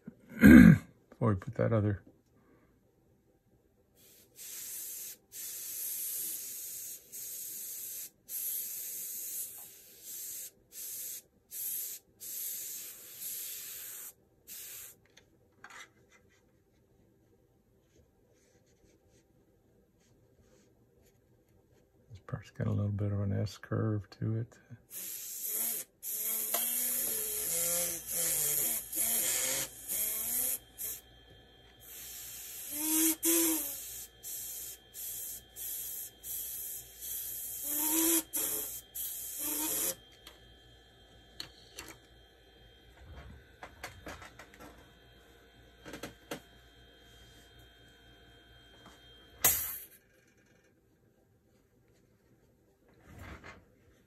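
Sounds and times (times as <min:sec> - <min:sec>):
airbrush spraying hiss: 0:04.0 - 0:15.0, 0:24.9 - 0:31.0, 0:31.8 - 0:40.0.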